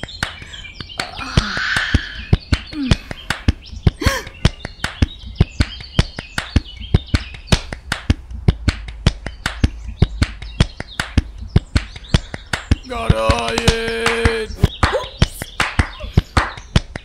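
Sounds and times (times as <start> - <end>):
birds chirping: 0.0 - 17.0
rhythmic snapping clicks: 0.0 - 17.0
low steady bass: 6.6 - 13.3.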